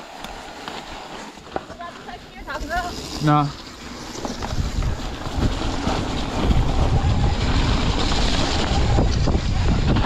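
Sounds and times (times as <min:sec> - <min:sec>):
tyres running on dirt: 0:00.0 - 0:10.0
wind rushing over microphone: 0:03.8 - 0:10.0.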